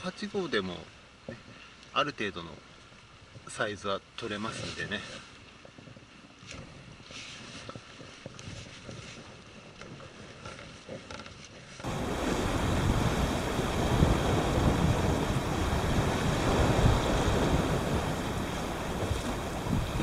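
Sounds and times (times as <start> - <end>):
sea surf on rocks: 11.8 - 20.0
wind buffeting microphone: 11.8 - 20.0.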